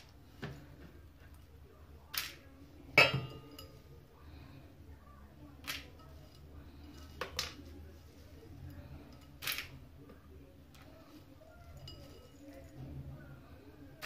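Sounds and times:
kitchenware clinking against a sink: 2.9 - 3.9, 11.6 - 13.1.

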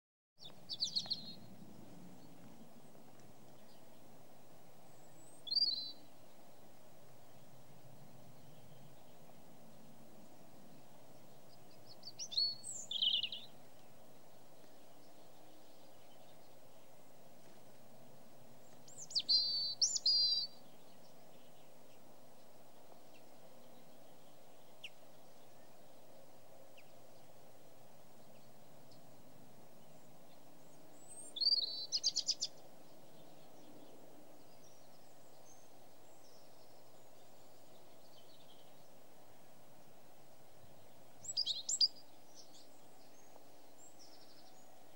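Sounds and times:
bird chirping: 0.4 - 2.5, 4.9 - 6.6, 10.6 - 16.9, 18.6 - 22.0, 29.8 - 39.0, 40.6 - 44.9
low background noise: 0.4 - 44.9.

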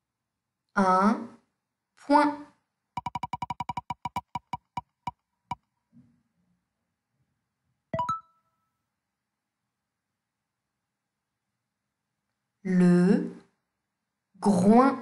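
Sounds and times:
spinning wheel ticking: 3.0 - 5.2.

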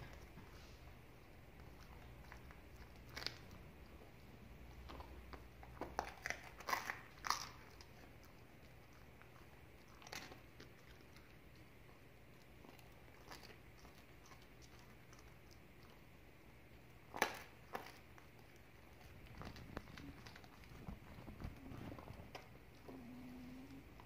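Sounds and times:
dog chewing bread: 0.0 - 24.0.

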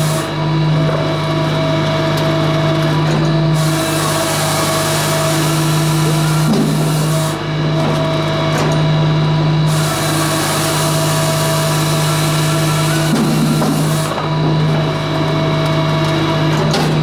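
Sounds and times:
firewood processor droning: 0.0 - 17.0.

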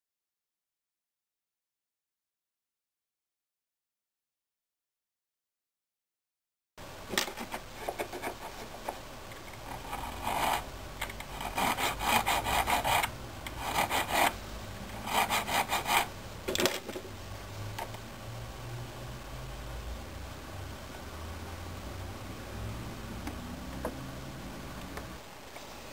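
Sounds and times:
file rasping on metal: 9.7 - 10.7, 11.3 - 14.4, 15.0 - 16.1.

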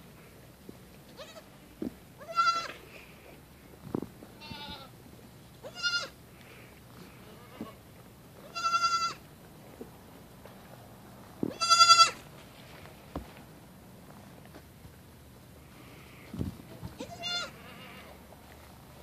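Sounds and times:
goat kids bleating: 1.0 - 3.0, 4.4 - 5.0, 5.6 - 6.2, 7.0 - 9.3, 11.5 - 12.2, 16.9 - 18.2.

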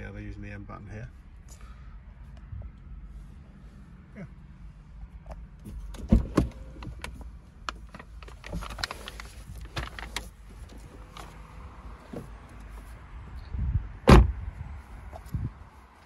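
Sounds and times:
low steady rumble: 0.0 - 16.0
car door opening clicks: 5.6 - 7.2.

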